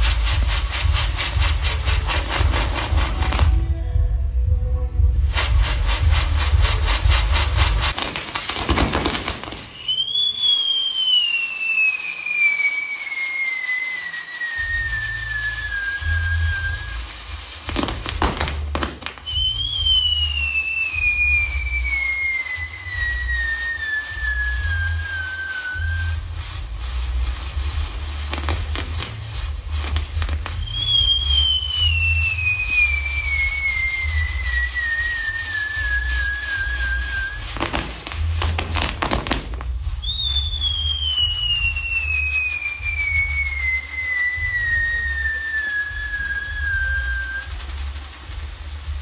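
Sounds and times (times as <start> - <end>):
steady low rumble: 0.0 - 8.0, 25.8 - 43.6, 46.4 - 49.0
whistling firework: 0.0 - 49.0.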